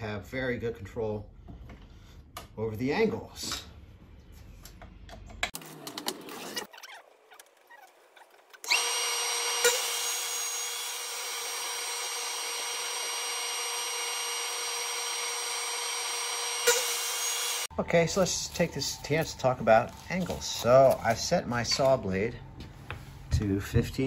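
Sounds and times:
table saw whine: 0:08.6 - 0:20.8.

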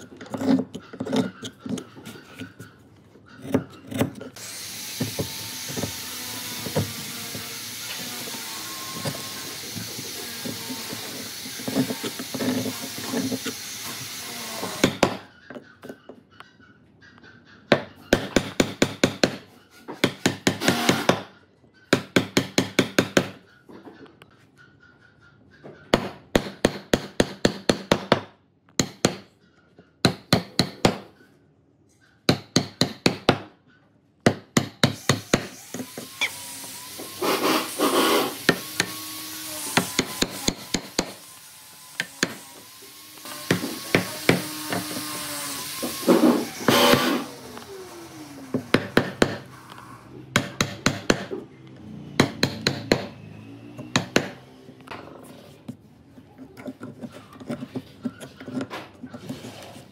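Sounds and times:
sharp knocking bursts: 0:50.3 - 0:51.4, 0:52.2 - 0:53.2, 0:53.8 - 0:54.5.

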